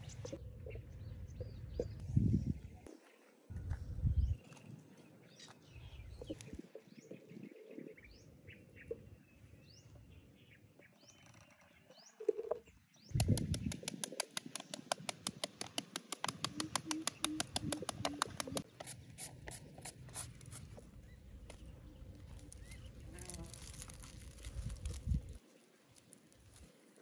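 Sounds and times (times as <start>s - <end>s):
bird chirps: 16.3s - 18.8s.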